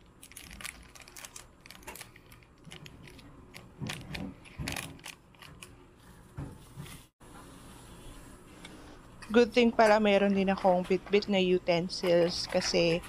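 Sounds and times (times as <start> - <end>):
plastic sachet crinkling: 0.0 - 5.8.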